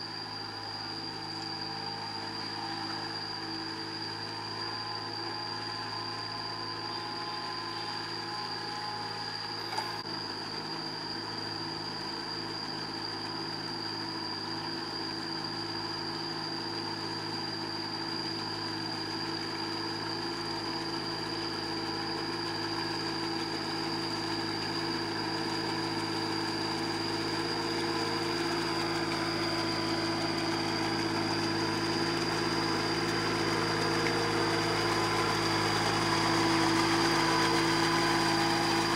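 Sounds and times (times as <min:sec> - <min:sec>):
tractor engine running: 0:19.2 - 0:38.9.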